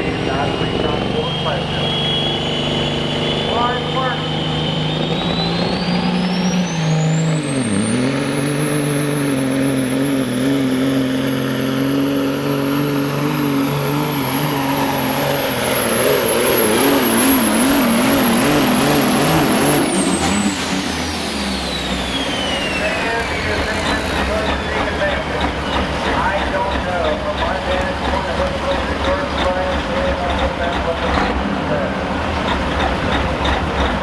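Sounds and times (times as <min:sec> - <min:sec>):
diesel truck engine under load: 0:00.0 - 0:34.0
turbo whistle: 0:00.6 - 0:08.1, 0:21.4 - 0:25.9.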